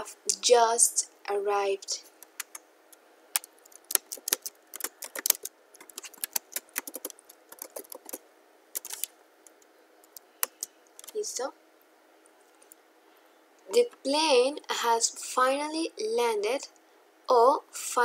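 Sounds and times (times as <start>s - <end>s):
computer keyboard typing: 2.2s - 2.6s, 3.4s - 11.2s.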